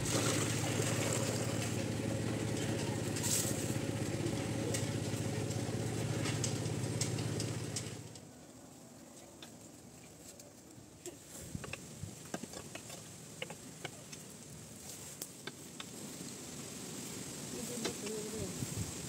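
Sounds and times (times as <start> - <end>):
small engine running: 0.0 - 8.2
fire crackling and ticking: 1.5 - 8.2, 11.6 - 17.3.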